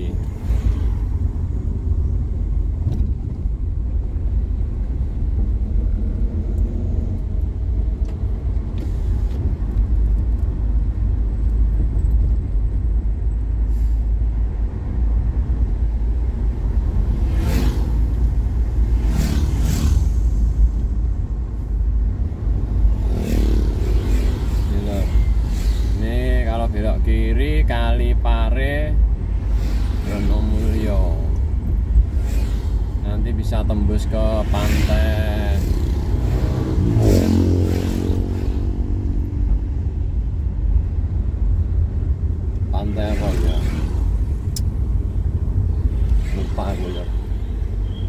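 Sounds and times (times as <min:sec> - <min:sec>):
car engine and tyre rumble: 0:00.0 - 0:48.0.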